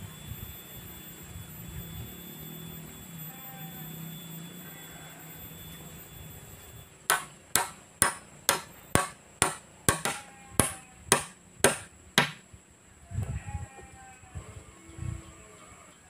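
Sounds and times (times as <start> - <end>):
metal tool striking wood: 7.1 - 12.4.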